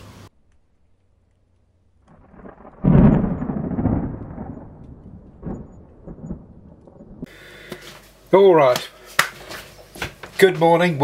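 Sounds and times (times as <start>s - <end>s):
low rumble: 0.4s - 7.4s
deep boom: 2.1s - 7.3s.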